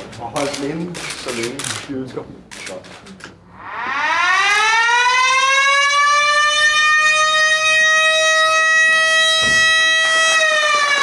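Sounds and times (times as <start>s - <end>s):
warning siren high tone: 3.5s - 11.0s.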